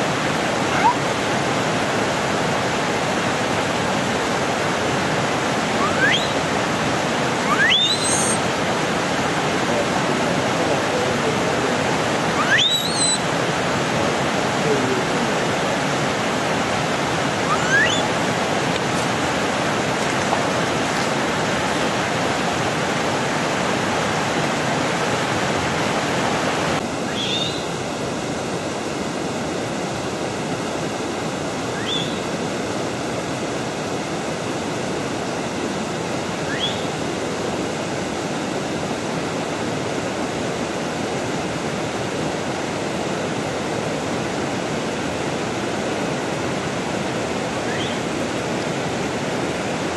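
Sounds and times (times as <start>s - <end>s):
flowing water rushing: 0.0s - 49.9s
high rising chirps: 5.8s - 6.4s, 7.4s - 8.4s, 12.4s - 13.2s, 17.4s - 18.1s.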